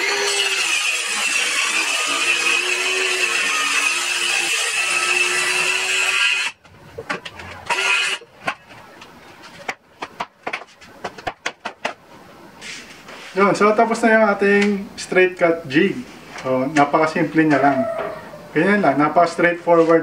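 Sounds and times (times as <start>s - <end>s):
circular saw cutting plywood: 0.0s - 8.6s
plywood knocks and clatter: 6.6s - 7.6s, 9.6s - 12.0s.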